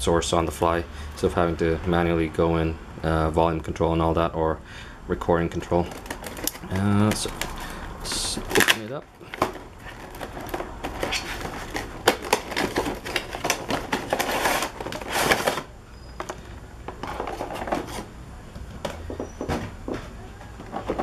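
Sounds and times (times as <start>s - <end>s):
plastic packaging crinkling: 5.6s - 18.0s.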